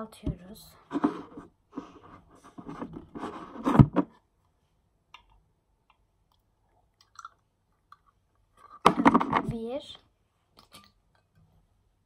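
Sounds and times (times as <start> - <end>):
plastic rubbing and knocking: 0.9 - 4.2, 8.8 - 9.6.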